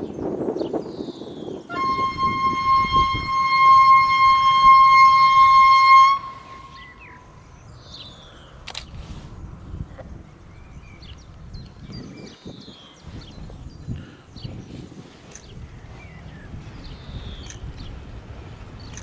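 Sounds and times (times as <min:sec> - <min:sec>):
train horn blast: 0:01.7 - 0:07.3.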